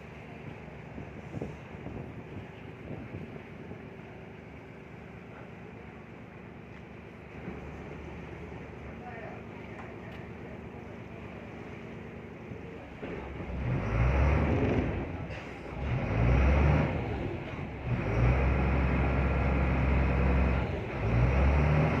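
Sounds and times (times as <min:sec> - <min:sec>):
boat engine revving: 0:12.9 - 0:22.0.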